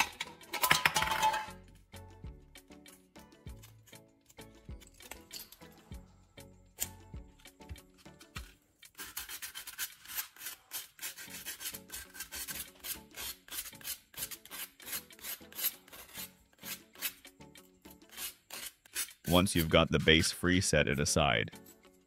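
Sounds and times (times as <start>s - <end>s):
sandpaper rasping on metal: 8.9s - 17.2s, 18.0s - 20.4s.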